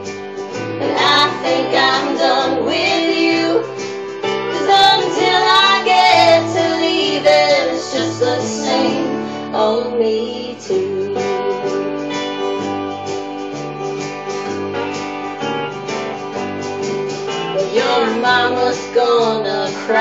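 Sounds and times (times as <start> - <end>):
instrumental accompaniment: 0.0 - 20.0
woman singing country song: 0.8 - 12.7, 17.6 - 20.0.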